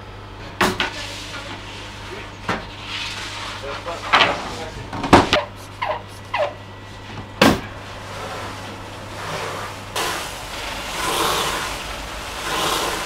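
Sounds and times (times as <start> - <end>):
pressure sprayer hissing: 9.1 - 13.0.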